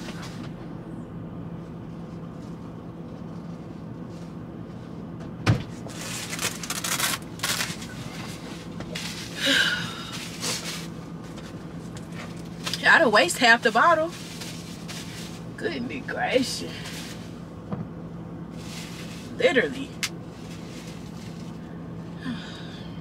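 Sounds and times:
truck cab hum: 0:00.0 - 0:23.0
rustling and handling noises: 0:05.7 - 0:09.4, 0:13.6 - 0:15.6, 0:18.5 - 0:19.4, 0:20.0 - 0:21.6.

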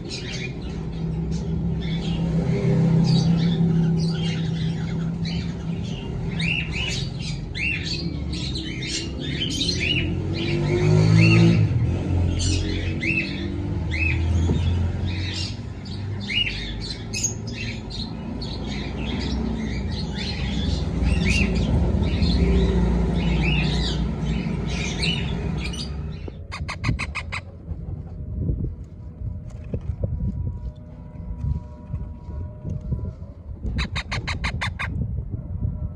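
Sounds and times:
steady low rumble: 0:13.9 - 0:35.9
parrots squawking: 0:26.5 - 0:27.5, 0:33.8 - 0:35.0.

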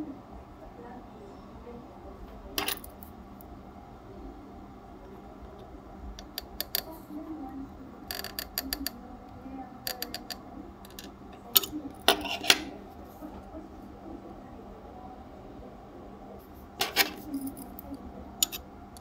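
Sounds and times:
screwdriver clicking and scraping metal: 0:09.9 - 0:12.7, 0:16.8 - 0:18.6.

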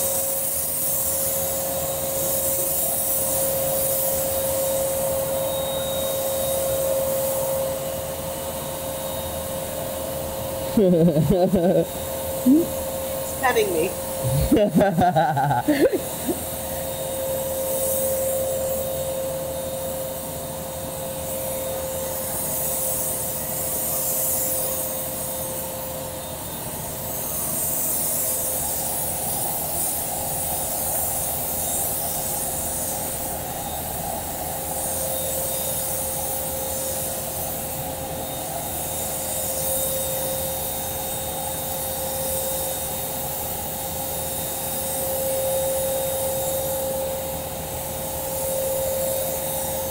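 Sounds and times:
electric blower motor whine: 0:01.4 - 0:35.5
rushing air hiss: 0:26.6 - 0:49.9.

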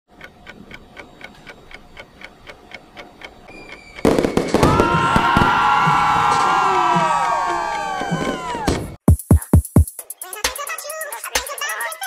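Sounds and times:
clock ticking: 0:00.1 - 0:04.6
falling whistles: 0:03.5 - 0:09.0
fireworks crackling: 0:03.7 - 0:09.0.

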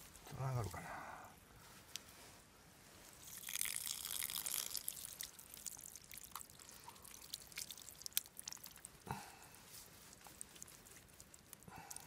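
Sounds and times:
water dripping: 0:03.2 - 0:09.2.

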